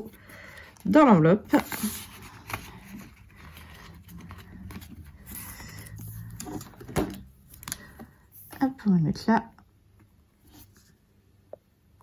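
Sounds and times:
paper and plastic rustling: 0:00.0 - 0:08.8.

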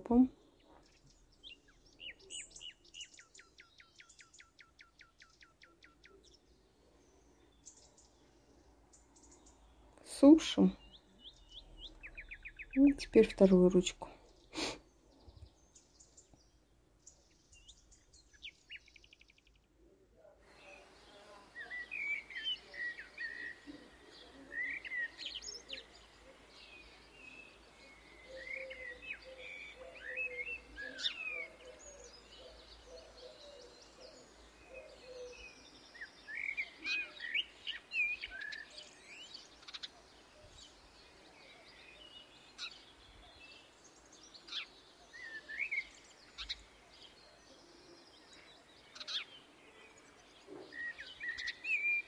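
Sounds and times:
small birds chirping: 0:00.0 - 0:52.0
lower repeated bird call: 0:20.5 - 0:40.7.

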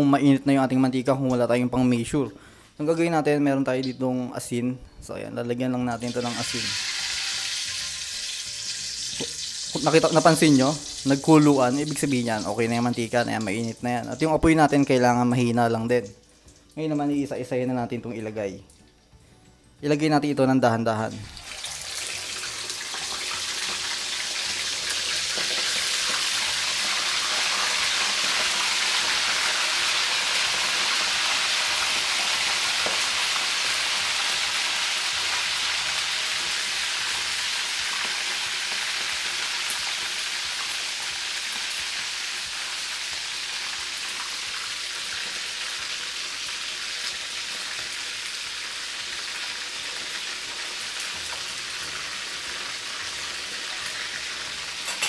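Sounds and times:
chicken deep-frying in oil: 0:06.0 - 0:15.0, 0:21.2 - 0:55.0.

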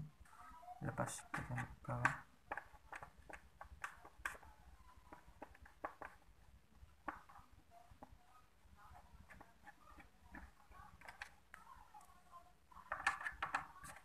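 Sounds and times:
hard plastic clicks and taps: 0:01.3 - 0:04.5.

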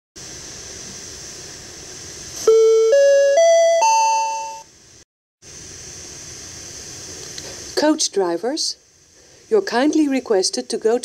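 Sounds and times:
steady hiss: 0:00.2 - 0:03.9, 0:04.8 - 0:11.0
rising attention chime: 0:02.5 - 0:04.7.

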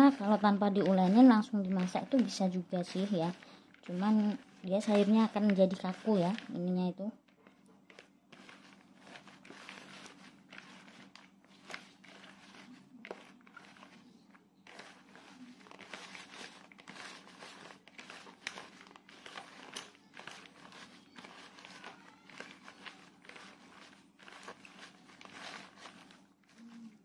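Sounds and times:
papaya strands crunching: 0:07.9 - 0:27.0.

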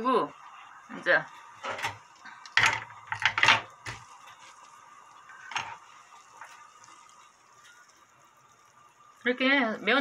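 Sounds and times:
kitchen utensils clattering: 0:02.6 - 0:03.7.

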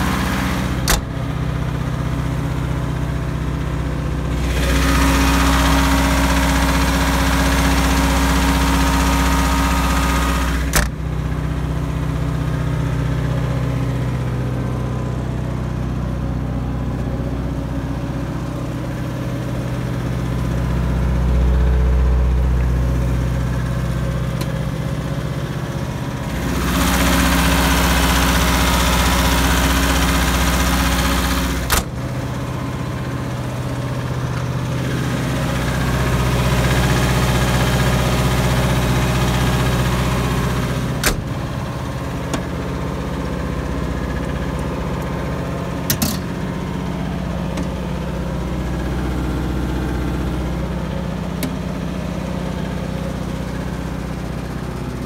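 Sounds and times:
diesel generator running: 0:00.0 - 0:55.0
door shutting click: 0:00.8 - 0:01.2, 0:10.6 - 0:11.0, 0:31.7 - 0:32.0, 0:41.0 - 0:41.4, 0:45.9 - 0:46.3.

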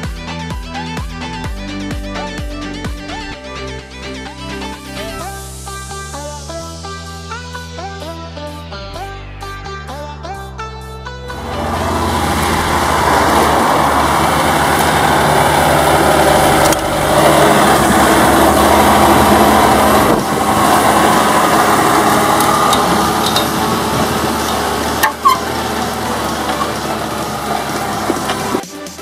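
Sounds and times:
tractor diesel engine under load: 0:11.3 - 0:28.7.

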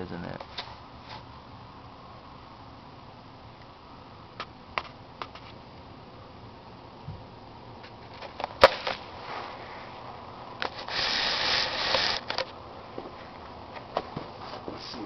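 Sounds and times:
vacuum scraping across carpet: 0:10.7 - 0:12.2.

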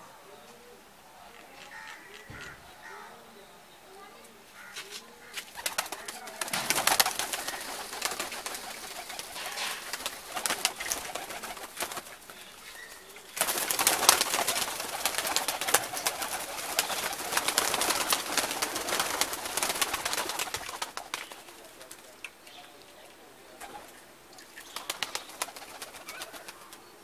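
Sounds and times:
pigeons cooing: 0:00.0 - 0:27.0
pigeon wings flapping: 0:05.4 - 0:22.3, 0:24.6 - 0:26.9.

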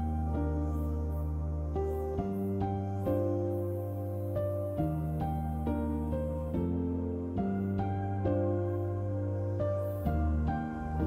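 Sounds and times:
gentle instrumental music: 0:00.0 - 0:11.0.

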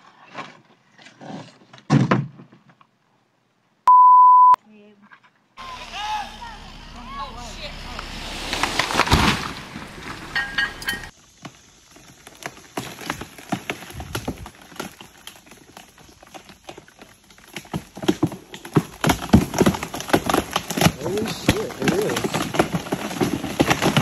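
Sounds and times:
tree crashing through branches: 0:08.0 - 0:24.0.

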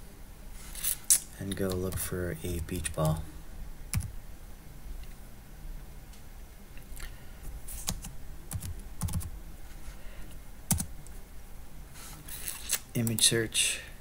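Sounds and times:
computer keyboard typing: 0:03.9 - 0:04.1, 0:07.8 - 0:09.3, 0:10.7 - 0:10.9.

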